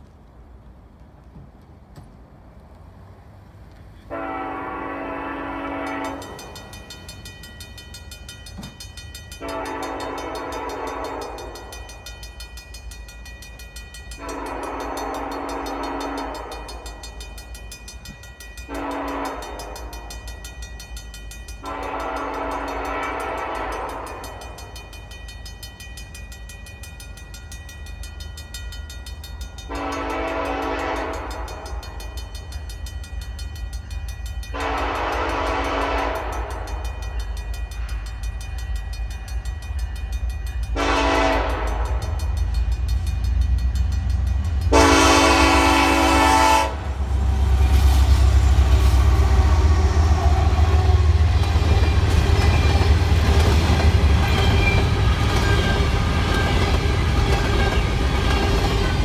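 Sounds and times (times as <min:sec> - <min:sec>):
locomotive air horn blasts: 0:04.1 - 0:06.6, 0:09.4 - 0:11.7, 0:14.2 - 0:16.8, 0:18.7 - 0:20.3, 0:21.6 - 0:24.4, 0:29.7 - 0:31.7, 0:34.5 - 0:36.7, 0:40.7 - 0:42.2, 0:44.6 - 0:51.4.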